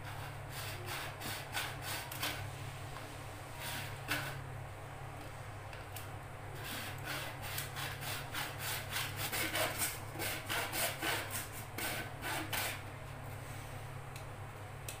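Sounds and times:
hacksaw cutting plastic pipe: 3.6s - 4.4s, 6.6s - 12.8s.

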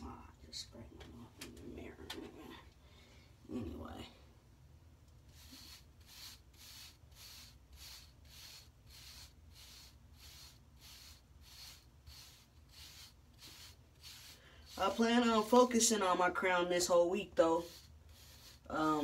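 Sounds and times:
brush swishing over hair: 5.3s - 19.0s.

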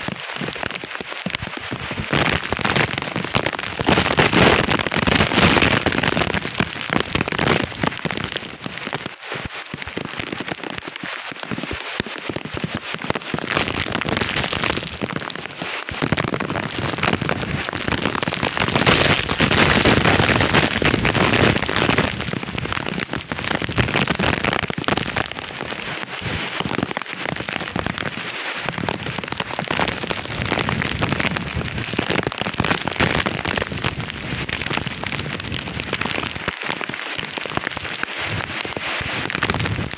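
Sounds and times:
heavy rain pouring: 0.0s - 39.9s
wind gusts thrashing trees: 16.8s - 39.9s.

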